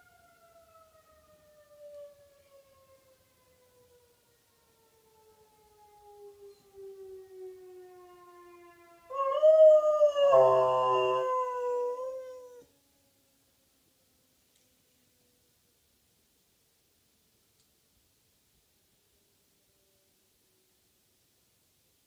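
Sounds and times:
faint siren winding down: 0.0 - 12.7
dog howling: 9.1 - 12.6.

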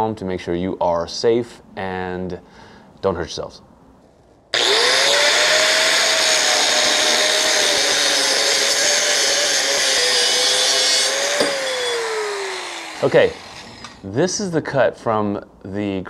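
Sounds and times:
angle grinder cutting steel: 4.5 - 14.0.

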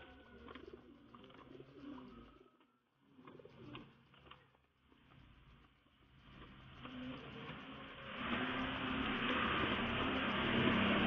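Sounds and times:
pigeons cooing: 0.0 - 2.5.

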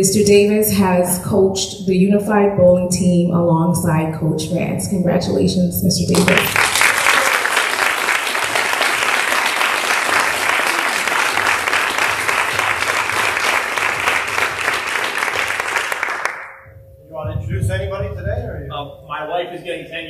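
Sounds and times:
audience applauding: 6.1 - 16.6.

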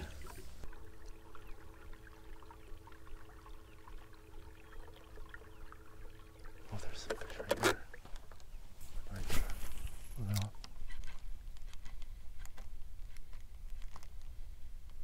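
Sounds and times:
electric trolling motor humming: 0.0 - 7.8
water lapping at hull: 0.0 - 10.2.

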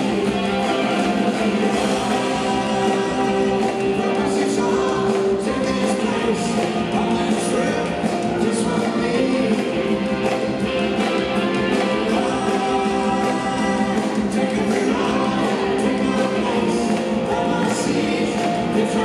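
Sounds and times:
electric bass: 0.0 - 19.0
electric guitar: 0.0 - 19.0
person singing: 0.0 - 19.0.

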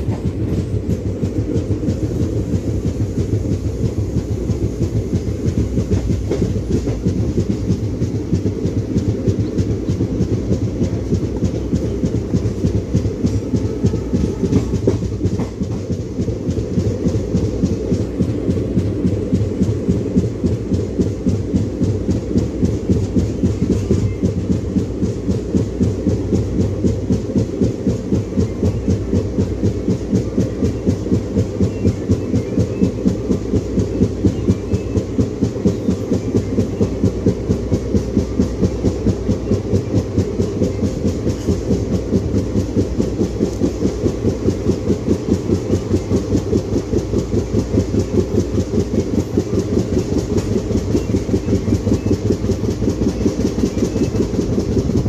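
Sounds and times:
diesel locomotive running: 0.0 - 55.0
train wheel thumping on rail: 0.0 - 55.0.

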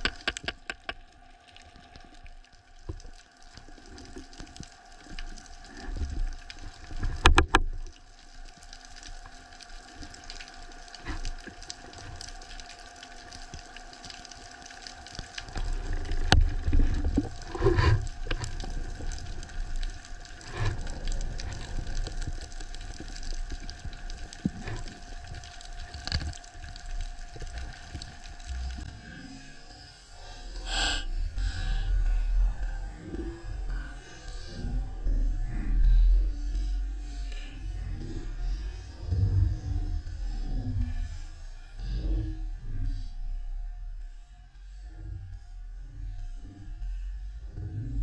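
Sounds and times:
underwater clicks and knocks: 0.0 - 1.1, 6.0 - 7.8, 15.2 - 19.2
underwater rumble and swishing: 0.0 - 48.0.

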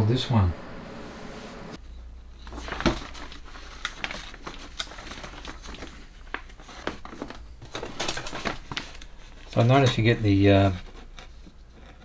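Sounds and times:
low hum: 0.0 - 2.5
pages rustling: 2.3 - 12.0.

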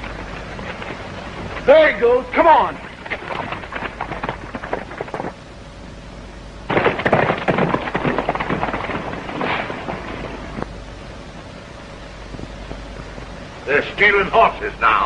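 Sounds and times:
hoofbeats on dirt road: 0.0 - 2.2, 2.8 - 5.4, 6.7 - 10.6.

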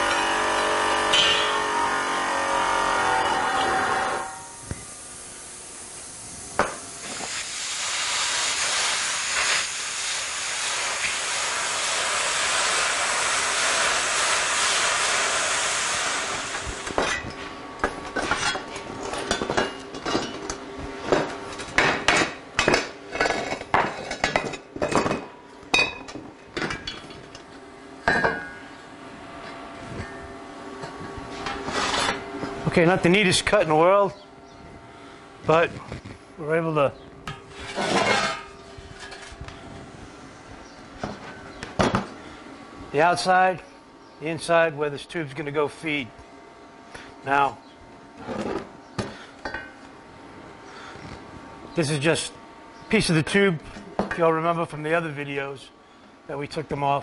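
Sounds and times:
steel pieces clanking: 0.9 - 1.6, 37.6 - 39.4
plasma cutter hissing: 4.2 - 17.0.

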